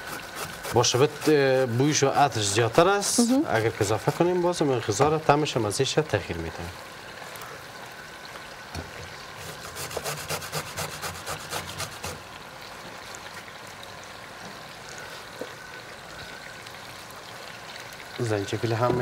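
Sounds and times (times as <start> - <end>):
ginger rasping on metal grater: 0.0 - 4.4, 9.4 - 12.2.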